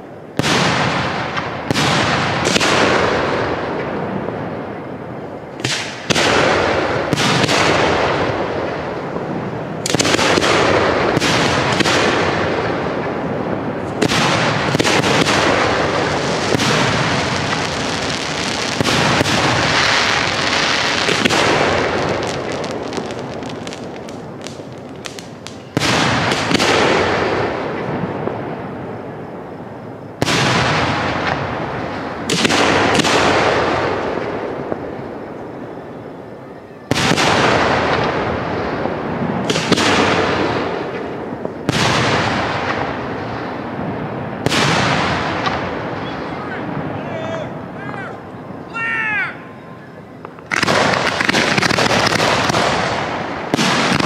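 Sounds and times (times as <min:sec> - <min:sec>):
fireworks booming: 0:00.0 - 0:54.0
sharp fireworks reports: 0:00.0 - 0:54.0.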